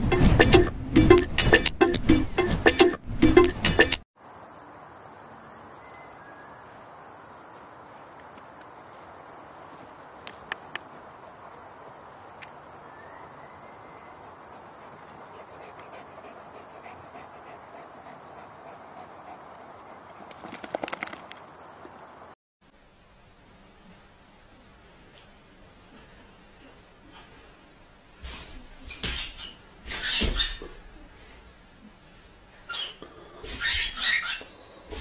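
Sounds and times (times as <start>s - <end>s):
insects chirring: 4.2s - 22.4s.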